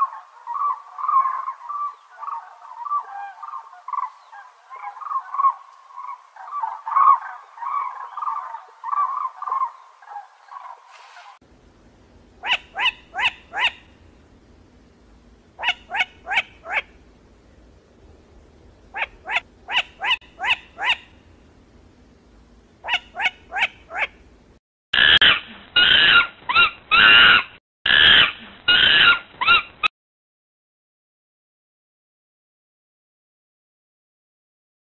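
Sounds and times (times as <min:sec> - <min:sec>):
cranes calling: 0:00.0 - 0:11.4, 0:12.4 - 0:14.1, 0:15.6 - 0:17.0, 0:18.9 - 0:21.3, 0:22.8 - 0:24.2.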